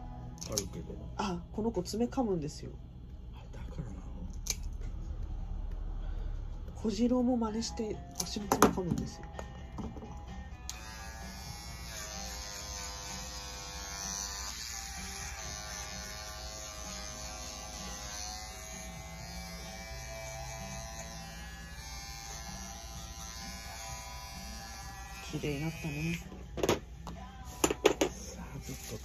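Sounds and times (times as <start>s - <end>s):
pet grooming tool buzzing: 10.6s - 26.3s.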